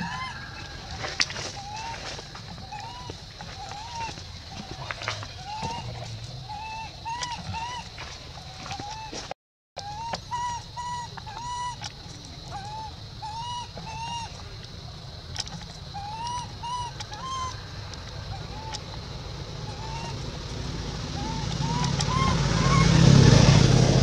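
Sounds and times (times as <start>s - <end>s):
baby monkey whimper calls: 0.0s - 7.9s, 8.6s - 9.2s, 9.8s - 11.9s, 12.5s - 14.3s, 15.9s - 17.6s, 19.6s - 20.2s, 21.1s - 23.2s
low vehicle engine hum: 0.0s - 24.0s.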